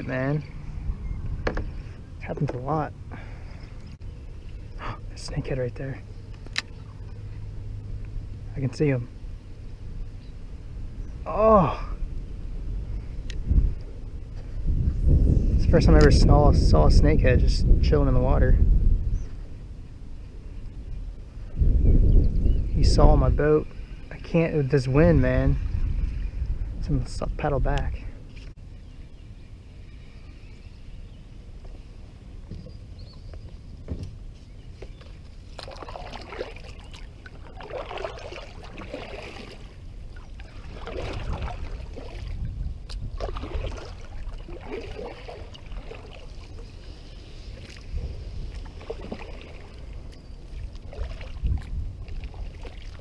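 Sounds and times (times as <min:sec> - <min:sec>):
wind on microphone: 0:00.0 - 0:05.6, 0:09.1 - 0:53.0
kayak paddle splashing: 0:34.6 - 0:53.0.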